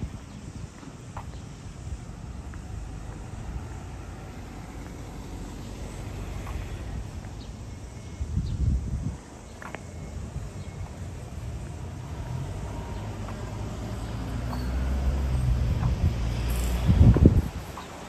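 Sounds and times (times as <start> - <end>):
wind rumble on microphone: 0.0 - 4.5, 6.0 - 13.8, 14.9 - 18.0
vehicle engine hum: 0.0 - 18.0.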